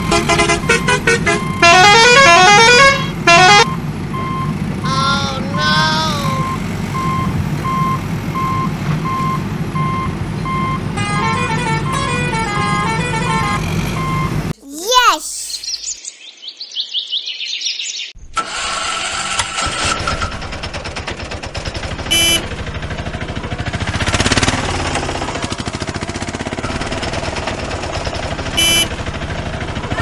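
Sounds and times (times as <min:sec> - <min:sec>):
birds chirping: 0:14.8 - 0:18.2
small engine puttering: 0:18.4 - 0:30.0
short horn beeps: 0:22.1 - 0:22.4, 0:28.6 - 0:29.0.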